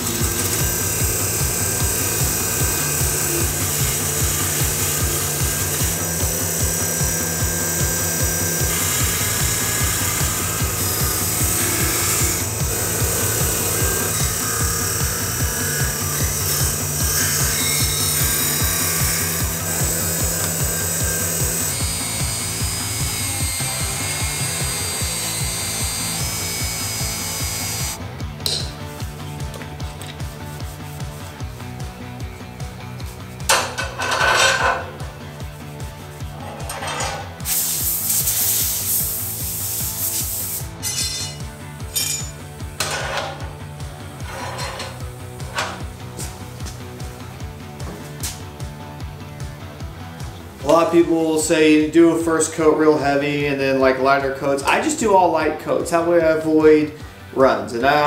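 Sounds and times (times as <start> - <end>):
rotary tool whining: 0.0 - 28.0, 44.0 - 46.0
wire wheel scrubbing metal: 0.0 - 28.0, 44.1 - 45.9
music with steady beat: 0.0 - 53.9
wire brush scratching metal: 44.2 - 45.8.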